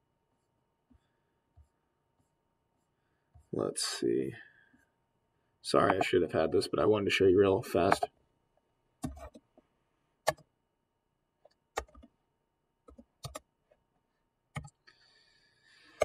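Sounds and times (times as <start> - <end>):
keyboard and mouse clicks: 7.8 - 8.1, 9.0 - 9.6, 10.2 - 10.5, 11.4 - 12.1, 12.9 - 13.5, 14.5 - 14.9.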